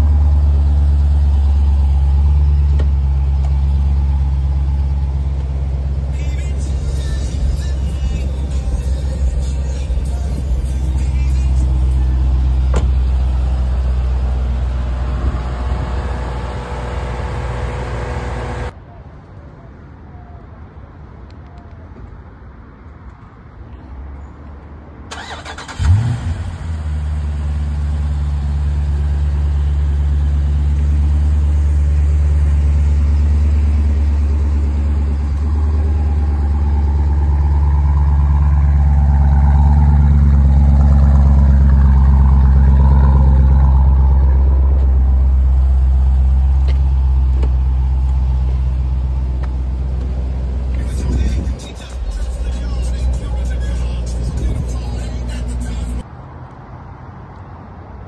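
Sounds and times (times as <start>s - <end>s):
deep engine idle: 0.0s - 14.7s
engine cold start: 25.1s - 26.6s
engine running loudly: 31.5s - 46.0s, 50.7s - 56.0s.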